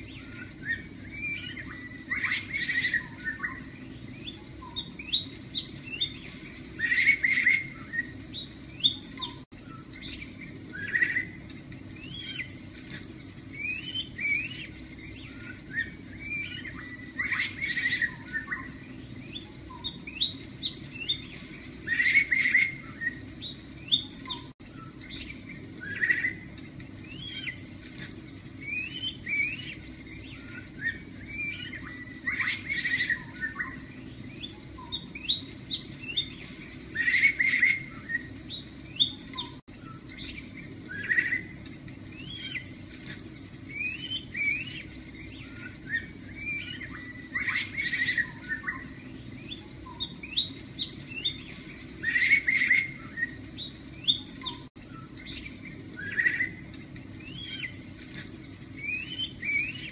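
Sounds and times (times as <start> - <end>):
bird whistling and chirping: 0.0 - 12.7, 13.5 - 42.8, 43.7 - 56.6, 57.2 - 57.8, 58.8 - 59.9.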